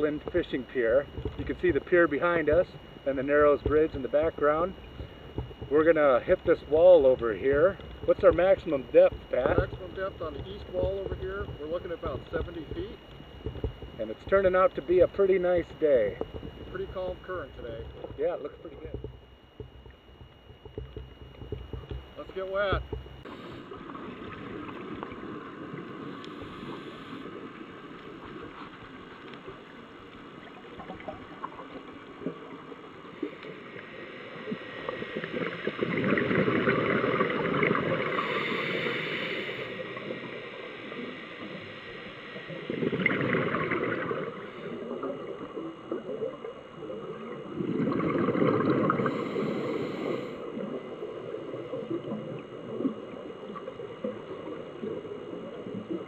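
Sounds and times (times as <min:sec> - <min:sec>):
steady low hiss: 0:00.0 - 0:43.0
underwater exhaled bubbles rushing: 0:22.8 - 0:41.7, 0:42.4 - 0:56.0.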